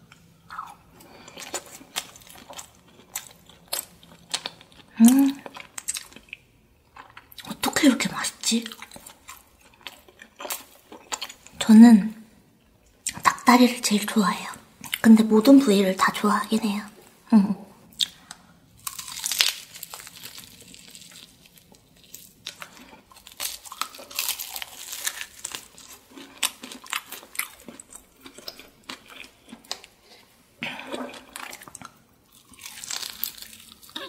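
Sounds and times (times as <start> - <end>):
crunchy bites into fried chicken: 18.8 - 29.8.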